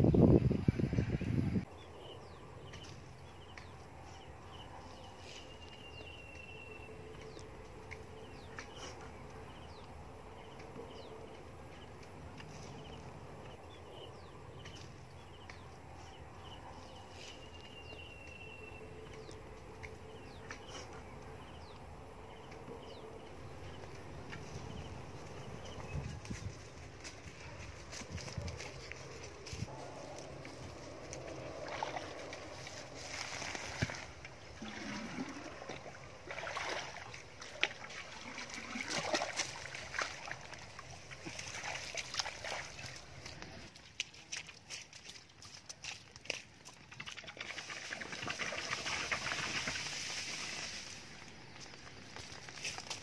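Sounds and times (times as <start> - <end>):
steady low rumble: 0.0 - 37.6
birds chirping: 0.0 - 43.7.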